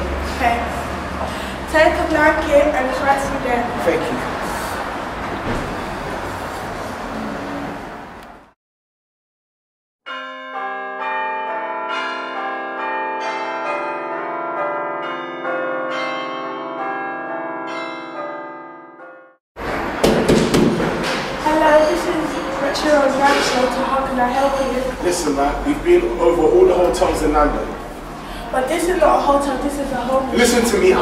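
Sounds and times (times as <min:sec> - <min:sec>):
room noise: 0:04.1 - 0:08.6
bells ringing: 0:10.1 - 0:20.0, 0:21.4 - 0:31.0.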